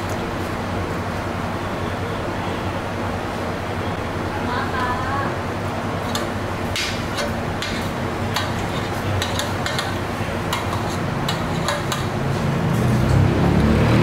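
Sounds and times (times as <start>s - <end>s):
cutlery clinking on a plate: 6.2s - 12.2s.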